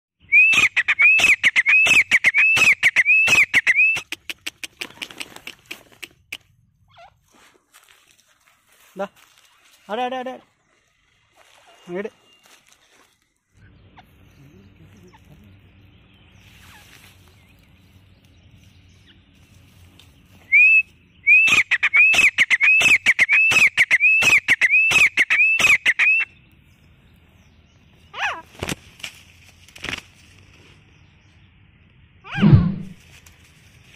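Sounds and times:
bird calling shrill notes: 0.2 - 4.2, 10.7 - 14.2, 20.4 - 26.4
harsh bird clicks: 1.2 - 6.6.

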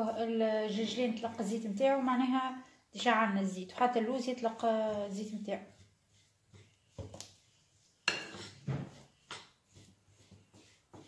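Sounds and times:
fork clinking on ceramic bowl: 8.1 - 8.5.

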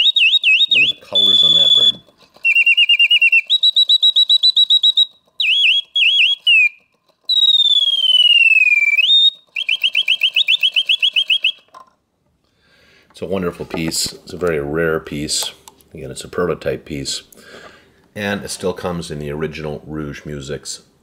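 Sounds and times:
mechanical bird whistling trills: 0.0 - 11.8.

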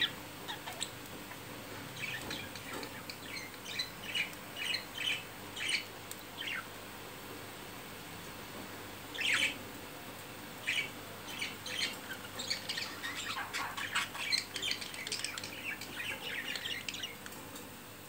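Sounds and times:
budgerigars squawking and chirping: 0.0 - 6.7, 9.2 - 9.6, 10.6 - 17.2.

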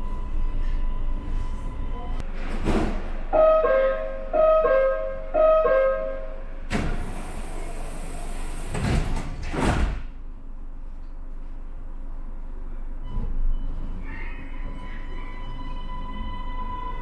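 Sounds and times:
sliding doors closing: 6.6 - 10.1.

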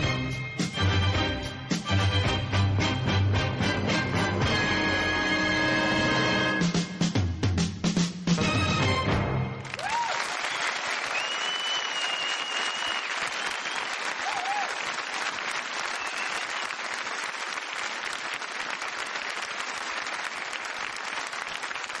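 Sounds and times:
audience applauding: 9.6 - 22.0.

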